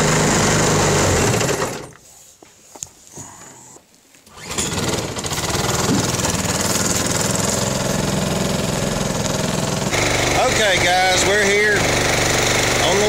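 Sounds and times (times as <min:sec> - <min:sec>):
boat motor running: 0:04.8 - 0:13.0.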